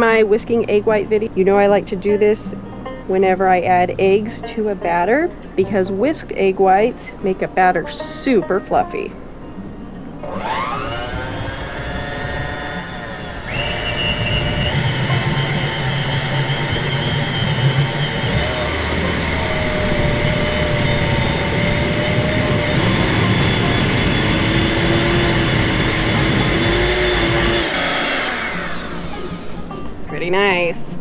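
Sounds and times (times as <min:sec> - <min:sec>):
electric hand mixer whine: 0:10.2 - 0:29.8.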